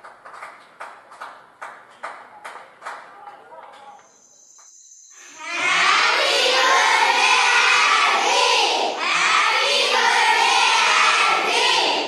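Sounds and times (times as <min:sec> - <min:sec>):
children singing in unison: 0:05.2 - 0:12.0.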